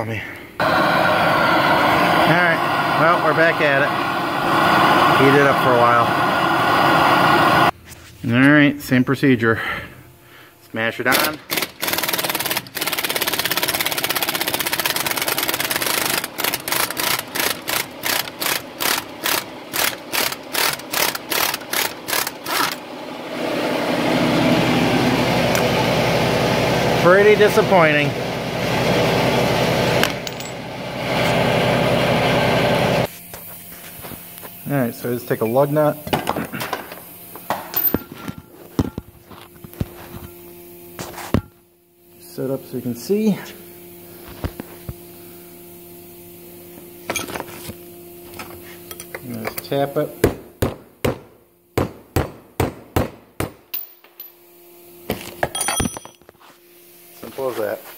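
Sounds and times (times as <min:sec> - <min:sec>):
low mechanical hum: 0:00.0 - 0:57.9
impact wrench hammering: 0:50.2 - 0:54.4
metal clinks and knocks: 0:53.7 - 0:54.4, 0:55.4 - 0:56.3.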